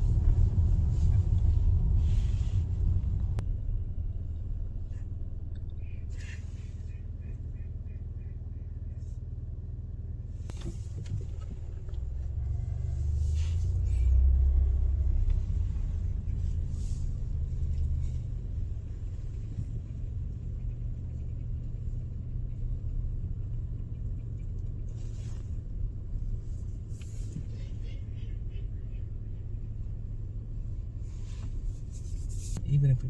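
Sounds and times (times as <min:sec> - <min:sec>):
car engine and road noise: 0:00.0 - 0:33.0.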